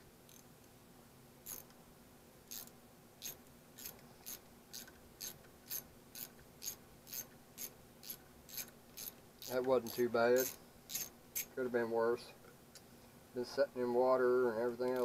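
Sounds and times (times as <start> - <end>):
ratcheting screwdriver clicking: 2.5 - 11.5.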